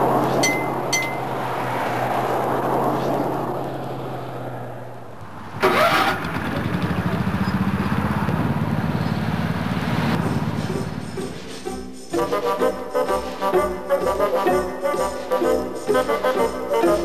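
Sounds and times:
small gasoline engine running: 0:05.6 - 0:09.6.

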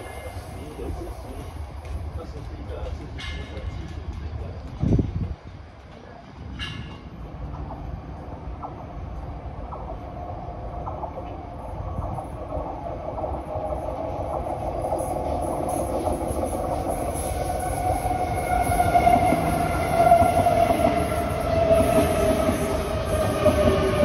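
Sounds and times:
electric train running past: 0:00.0 - 0:24.0.

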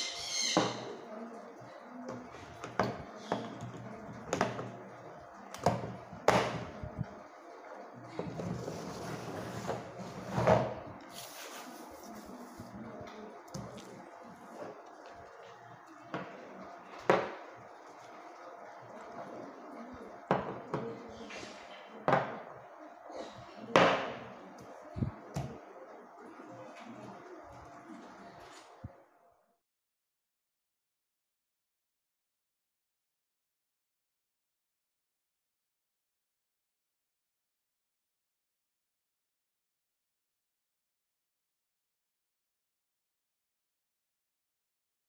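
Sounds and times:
soft rubbing: 0:08.2 - 0:15.8
hand brushing paper: 0:11.1 - 0:12.8.

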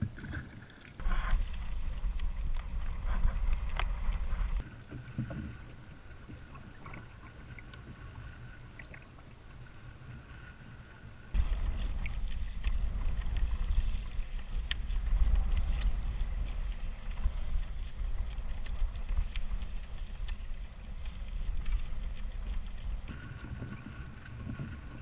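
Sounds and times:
light clicks and splashes: 0:00.0 - 0:09.4, 0:11.4 - 0:25.0
waves lapping against kayak hull: 0:00.0 - 0:25.0
wind buffeting microphone: 0:01.0 - 0:04.7, 0:11.3 - 0:25.0.

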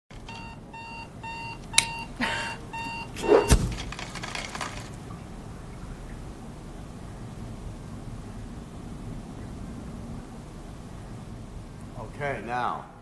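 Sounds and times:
alarm clock beeping: 0:00.3 - 0:03.6
loud thump: 0:03.2 - 0:03.9.

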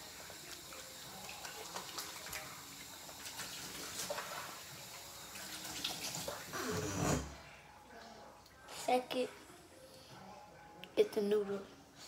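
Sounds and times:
tap water running at a sink: 0:00.0 - 0:07.3.

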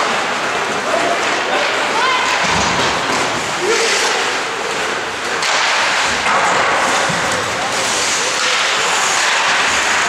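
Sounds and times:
players' voices: 0:00.0 - 0:10.0
skate blades scraping ice: 0:02.4 - 0:10.0
hockey sticks and puck knocking: 0:04.6 - 0:10.0.

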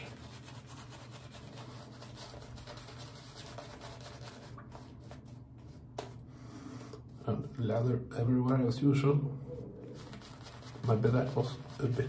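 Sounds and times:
shaving brush scrubbing beard: 0:00.0 - 0:05.7, 0:09.9 - 0:12.0.

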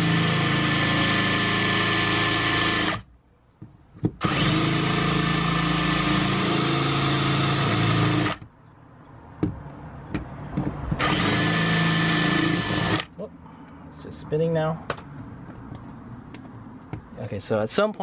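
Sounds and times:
cordless drill drilling metal: 0:00.0 - 0:03.1, 0:04.2 - 0:08.4, 0:11.0 - 0:13.1.

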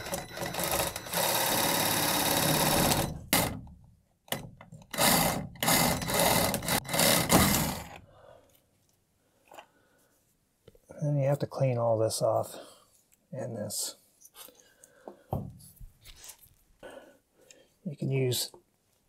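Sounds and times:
reciprocating saw cutting plastic pipe: 0:00.0 - 0:03.7, 0:04.8 - 0:08.0.

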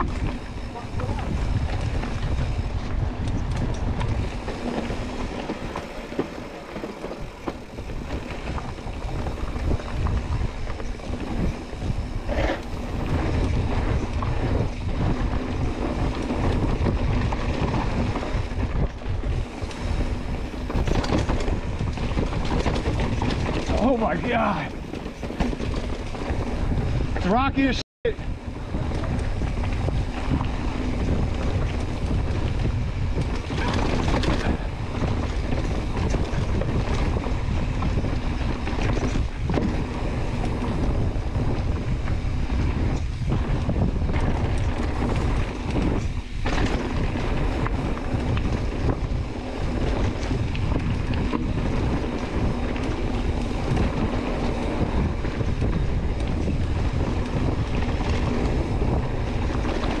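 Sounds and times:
bike knocking on rocks: 0:00.0 - 0:27.2
bike rumbling on rocky trail: 0:00.0 - 1:00.0
wind rushing over microphone: 0:00.0 - 1:00.0.

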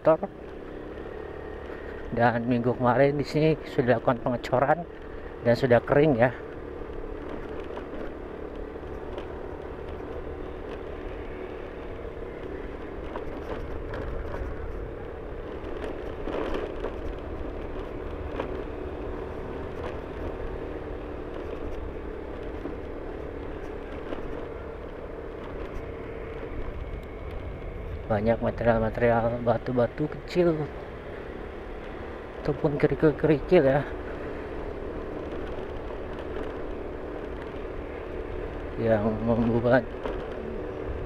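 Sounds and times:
vehicle engine and road noise: 0:00.0 - 0:41.0.

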